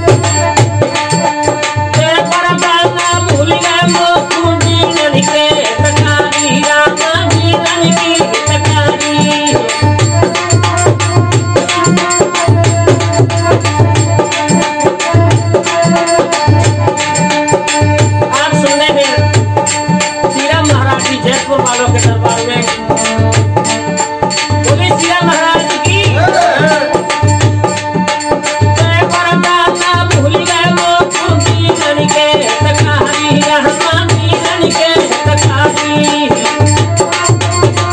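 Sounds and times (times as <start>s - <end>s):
dholak drum strokes: 0.0s - 37.9s
harmonium held notes: 0.0s - 37.9s
man singing: 24.8s - 27.2s.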